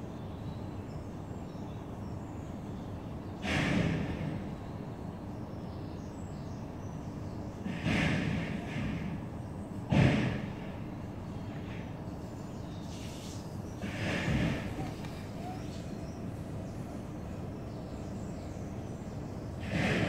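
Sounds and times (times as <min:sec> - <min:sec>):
steady low factory rumble: 0:00.0 - 0:20.0
sudden bursts of noise: 0:12.9 - 0:17.3.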